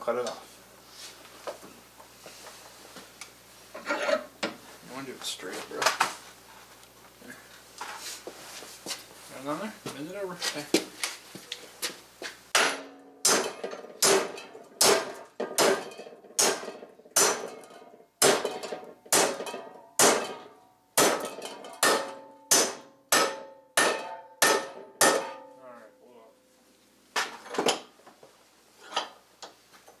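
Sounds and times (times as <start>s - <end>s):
hammer striking metal: 12.5s - 25.6s.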